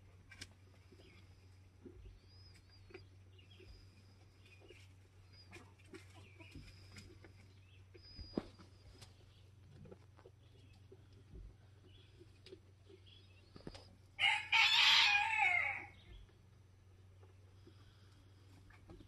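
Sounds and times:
low steady hum: 0:00.0 - 0:19.0
faint bird chirps: 0:02.0 - 0:09.5.

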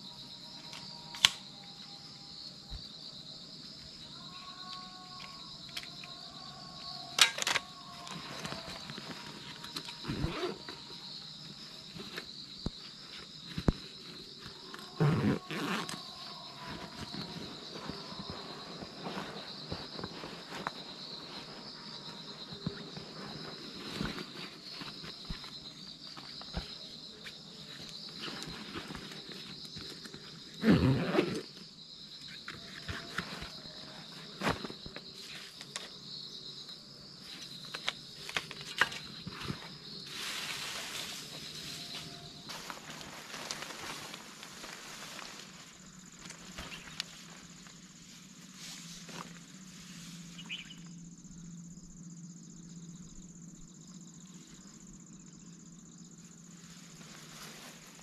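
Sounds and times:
insect drone: 0:00.0 - 0:58.0.

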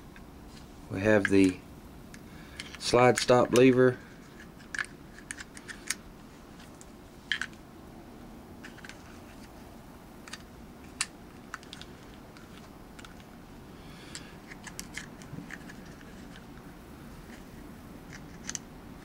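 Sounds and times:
small metal parts clicking: 0:18.1 - 0:18.7.

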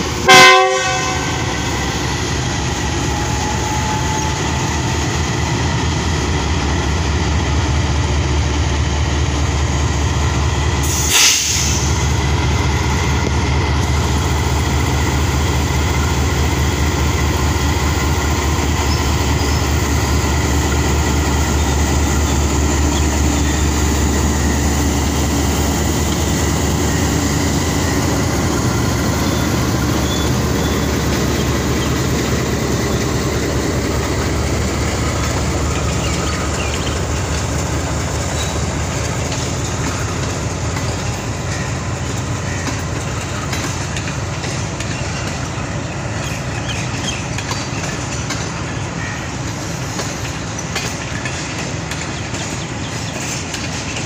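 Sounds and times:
train rumbling past: 0:00.0 - 0:54.0
locomotive horn blast: 0:00.2 - 0:01.7
brief hiss: 0:10.8 - 0:12.0.

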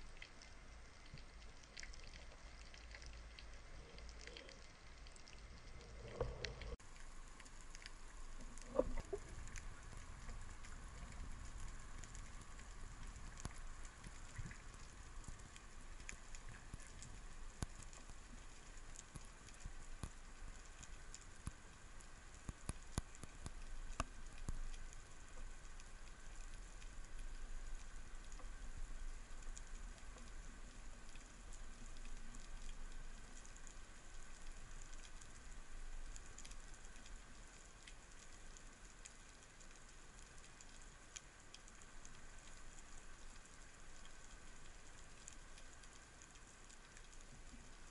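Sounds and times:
underwater crackling clicks: 0:00.1 - 0:47.9.

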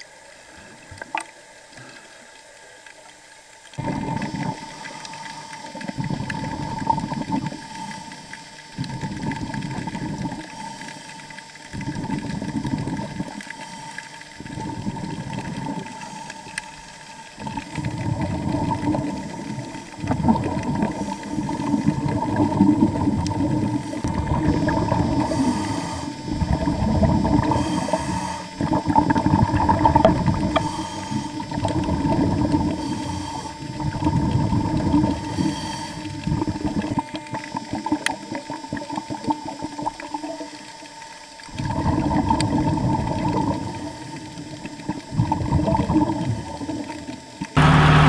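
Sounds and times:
steady hum: 0:02.6 - 0:48.0
underwater water surge: 0:47.6 - 0:48.0.

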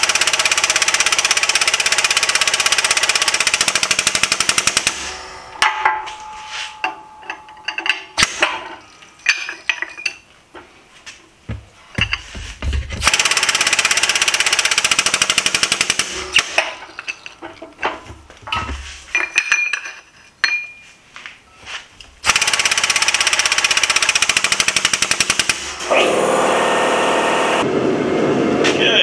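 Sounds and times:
metal ringing: 0:05.0 - 0:10.3, 0:16.2 - 0:21.0
metal knocks: 0:05.6 - 0:10.2, 0:11.4 - 0:13.1
hydraulic jack pumping rattling: 0:11.5 - 0:19.7.

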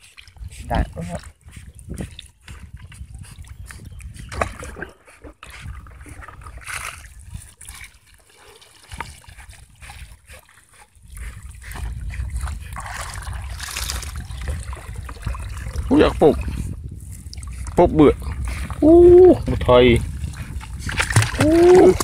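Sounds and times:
water splashing and trickling: 0:00.0 - 0:22.0
clicks and knocks of fish net: 0:13.6 - 0:14.1, 0:20.6 - 0:22.0.

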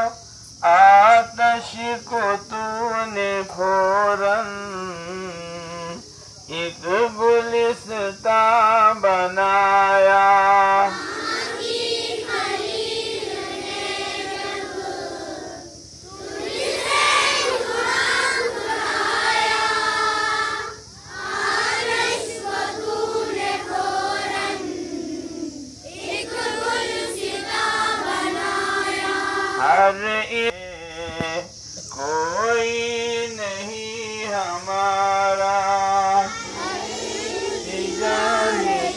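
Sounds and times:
children singing in unison: 0:09.8 - 0:30.1, 0:34.9 - 0:38.9.

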